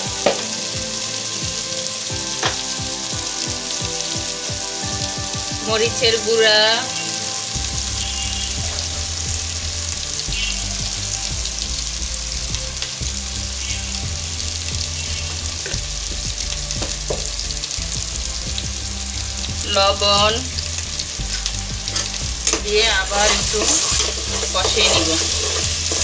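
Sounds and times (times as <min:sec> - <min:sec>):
spice paste sizzling in oil: 0:00.0 - 0:26.0
spatula scraping pot: 0:21.4 - 0:26.0.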